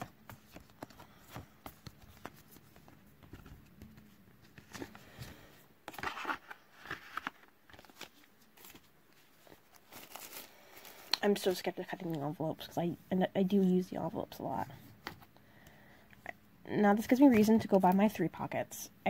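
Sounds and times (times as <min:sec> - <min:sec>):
paper and card rustling: 0:00.0 - 0:12.4.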